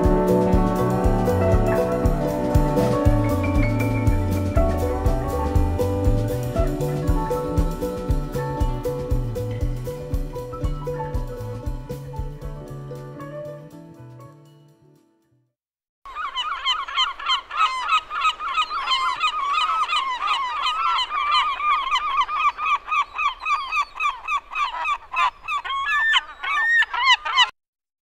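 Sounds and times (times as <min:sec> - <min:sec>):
seagulls squawking: 0:00.0 - 0:09.0, 0:16.1 - 0:27.5.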